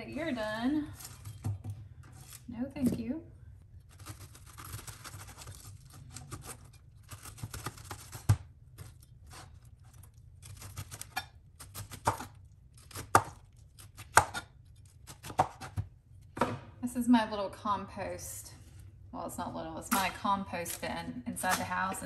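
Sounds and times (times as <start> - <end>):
knife scraping pineapple: 3.8 - 13.2.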